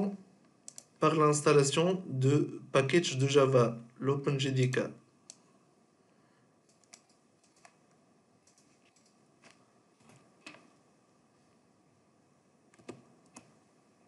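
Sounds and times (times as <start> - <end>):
keyboard and mouse clicks: 0.4 - 1.0, 6.7 - 10.7, 12.7 - 13.6.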